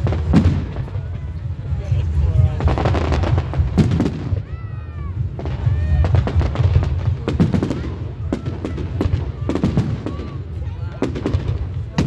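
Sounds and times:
fireworks bangs and crackles: 0.0 - 12.0
low rumble: 0.0 - 12.0.

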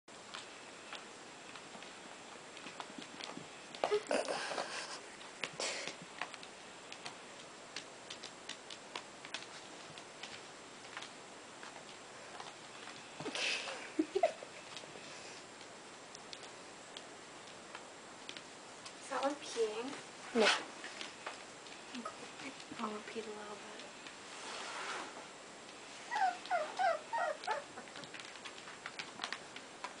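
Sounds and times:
puppies scuffling on carpet: 0.2 - 13.6, 18.2 - 30.0
scratchy rustling: 19.0 - 30.0
puppies yelping: 26.0 - 28.2.

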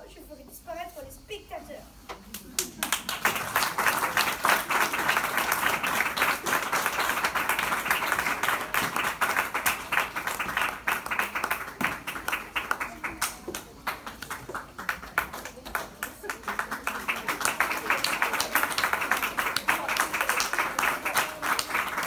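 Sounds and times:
audience applauding: 2.3 - 22.0.

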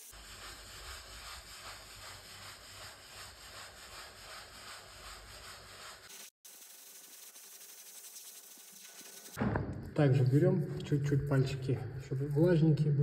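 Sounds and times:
sponge rubbing on tile: 0.0 - 9.4.

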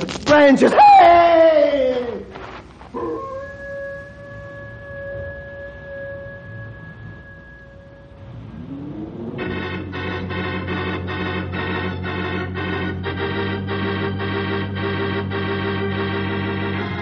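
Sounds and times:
dramatic sustained organ chords: 3.0 - 17.0.

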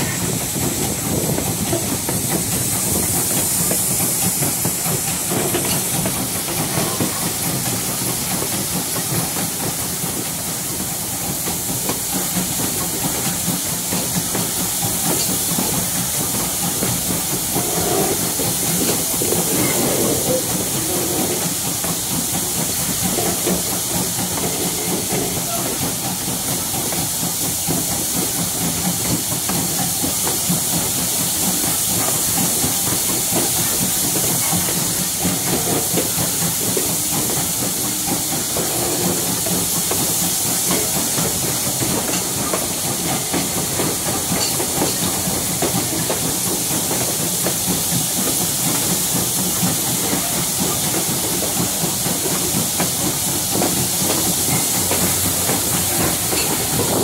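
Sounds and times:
steam train hissing: 0.0 - 57.0
train low rumble: 0.0 - 57.0.

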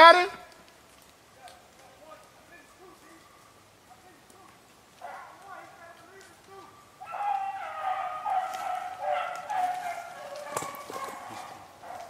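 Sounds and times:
dogs baying: 5.0 - 5.4, 6.8 - 12.0.

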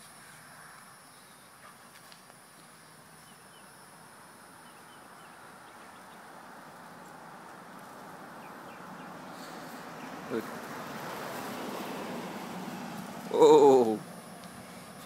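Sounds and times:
insect drone: 0.0 - 15.0
faint bird chirps: 0.2 - 2.0, 4.6 - 6.3.

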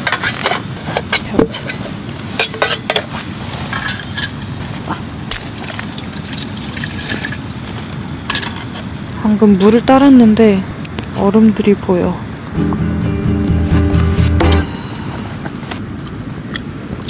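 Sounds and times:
water pouring into a pot: 5.6 - 7.6.

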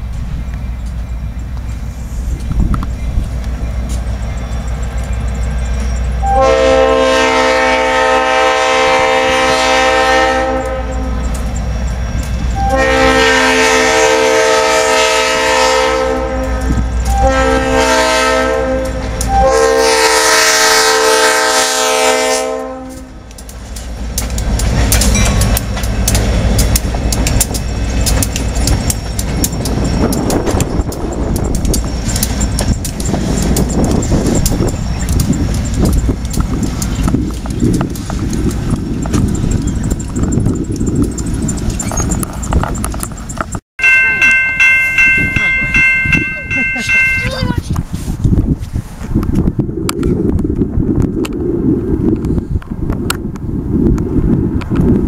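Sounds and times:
wheels clicking on rails: 0.0 - 6.4, 10.4 - 13.2, 22.9 - 47.9
locomotive engines running: 0.0 - 6.9, 10.6 - 14.0, 22.9 - 47.8
locomotive air horn blasts: 6.2 - 11.2, 12.6 - 23.2.

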